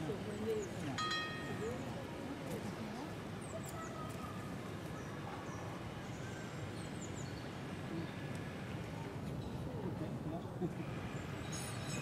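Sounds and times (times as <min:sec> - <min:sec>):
outdoor background noise: 0:00.0 - 0:12.0
small birds chirping: 0:03.4 - 0:08.2.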